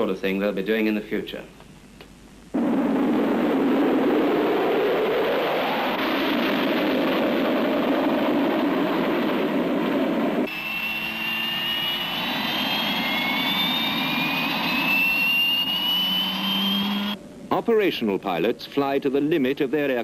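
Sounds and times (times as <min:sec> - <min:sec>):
jet turbine whine: 0:02.5 - 0:18.8
jet engines roaring: 0:02.6 - 0:17.2.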